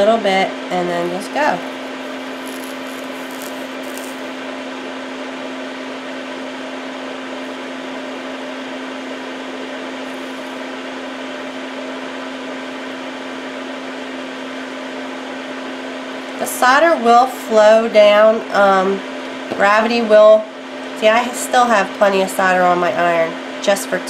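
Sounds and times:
small motor humming: 1.0s - 4.4s, 10.1s - 10.7s.

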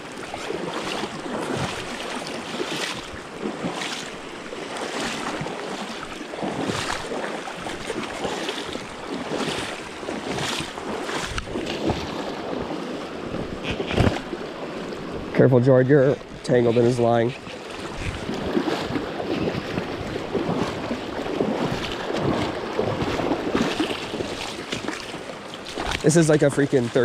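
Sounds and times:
river current rushing and splashing: 0.0s - 27.0s.

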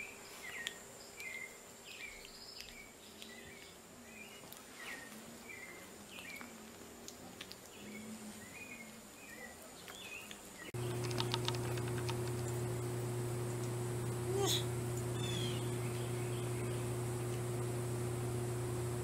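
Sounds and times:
rapid ticking: 10.8s - 12.8s
steady low hum: 10.8s - 19.0s.

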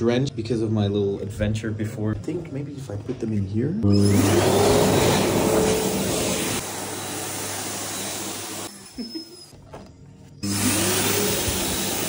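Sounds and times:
hand dryer blowing: 3.9s - 9.1s, 10.4s - 12.0s.

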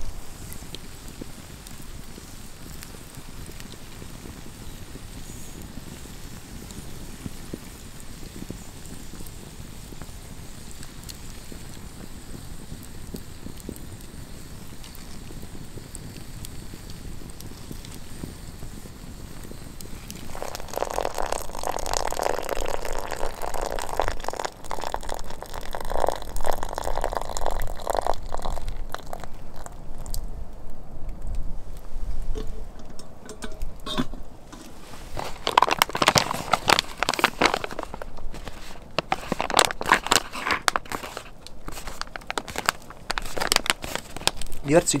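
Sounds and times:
hot water pouring: 0.0s - 30.2s, 31.7s - 45.0s
plastic pouch crinkling: 34.5s - 45.0s.

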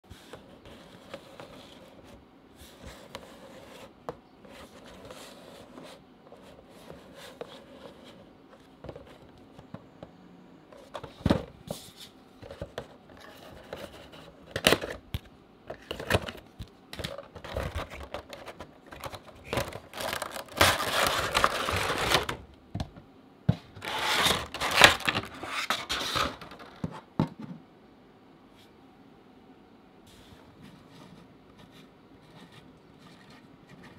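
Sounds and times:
plastic crinkling and scraping: 15.7s - 22.4s, 23.6s - 27.1s
cardboard box being handled: 17.4s - 22.4s.

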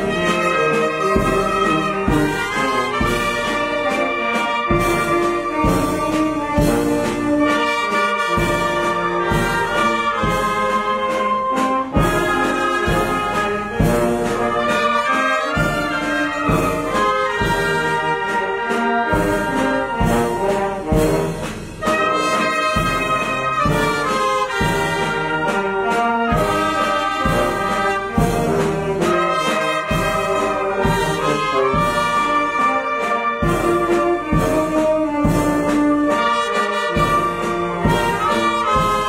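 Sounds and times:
brass band music: 0.0s - 39.0s.

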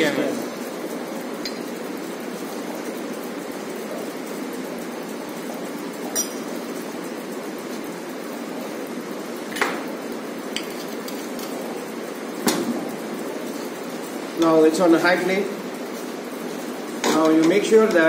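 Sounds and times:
glass bottle and metal jigger clinks: 6.1s - 6.5s.

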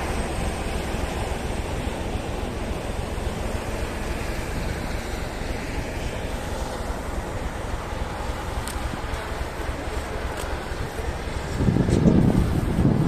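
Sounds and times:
rail vehicle rolling past: 0.0s - 13.0s
wind on microphone: 11.3s - 13.0s.

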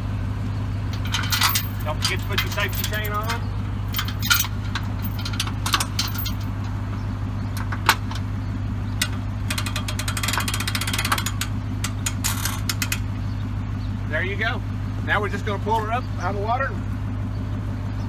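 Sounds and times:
truck engine idling: 0.0s - 18.0s
winch ratchet clicking: 0.9s - 6.5s, 9.0s - 13.0s
metal clicks and knocks: 0.9s - 6.8s, 9.0s - 13.1s.

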